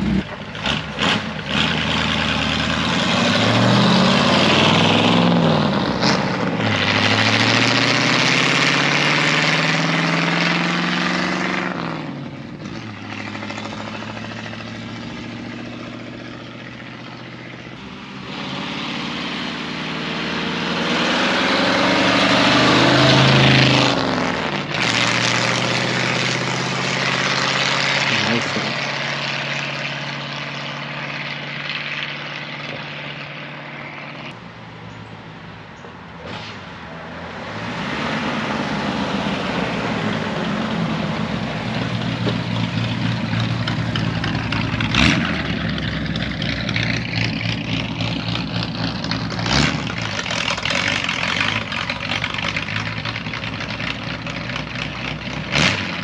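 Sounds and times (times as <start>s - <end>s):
car engine accelerating past: 0.0s - 34.4s.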